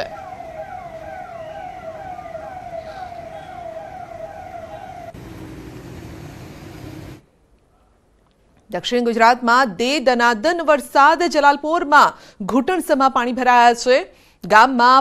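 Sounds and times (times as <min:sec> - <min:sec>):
ambulance siren wailing: 0:00.0 - 0:07.2.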